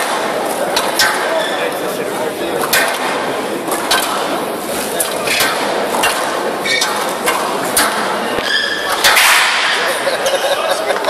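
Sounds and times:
squash ball knocks: 0.0s - 1.4s, 2.5s - 9.8s
crowd chatter: 0.0s - 11.0s.

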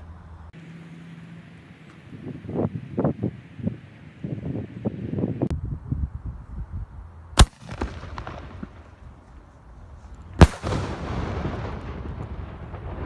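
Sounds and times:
firework launch bang: 7.4s - 9.2s, 10.4s - 13.0s.

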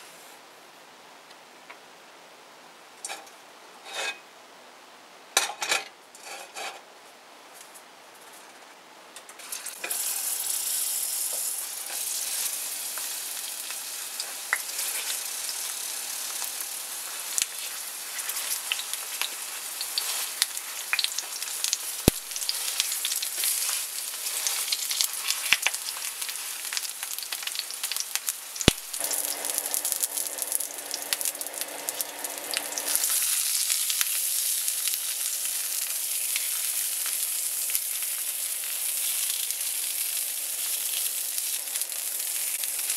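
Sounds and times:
eggplant sizzling in hot oil: 9.3s - 42.9s.

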